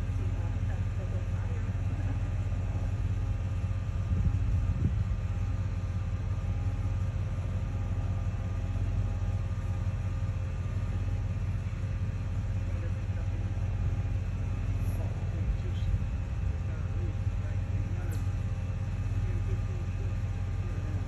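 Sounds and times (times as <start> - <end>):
truck engine idling: 0.0 - 21.0.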